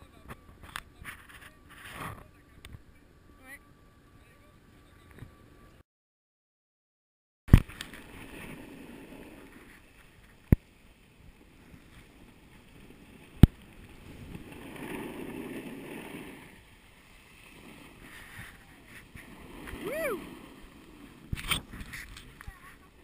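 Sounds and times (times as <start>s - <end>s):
snowboard scraping over snow: 7.5s - 23.0s.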